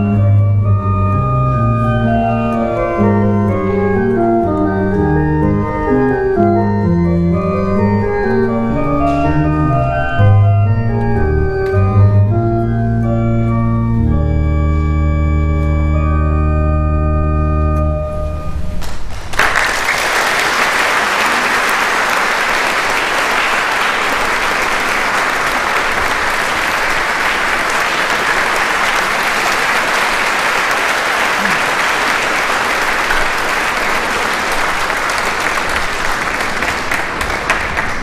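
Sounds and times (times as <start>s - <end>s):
electronic organ chord: 0.0s - 18.8s
audience applauding: 18.8s - 38.0s.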